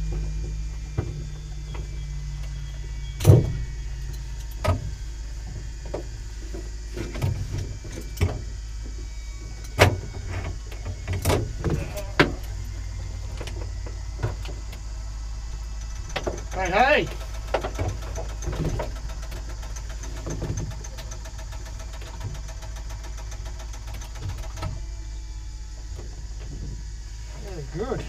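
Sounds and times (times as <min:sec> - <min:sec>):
steady low hum: 0:00.0 - 0:28.0
clicks and knocks in cockpit: 0:15.6 - 0:24.8.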